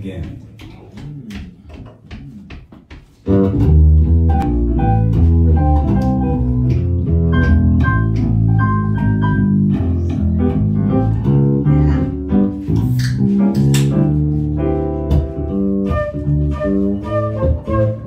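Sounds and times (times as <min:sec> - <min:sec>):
double bass: 0:03.2 - 0:18.0
flute melody: 0:15.4 - 0:18.0.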